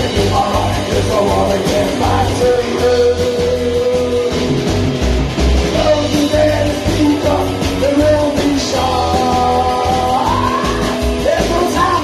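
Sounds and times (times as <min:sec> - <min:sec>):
person singing: 0:00.0 - 0:04.7, 0:05.7 - 0:12.0
drum kit: 0:00.0 - 0:12.0
electric guitar: 0:00.0 - 0:12.0
upright double bass: 0:00.0 - 0:12.0.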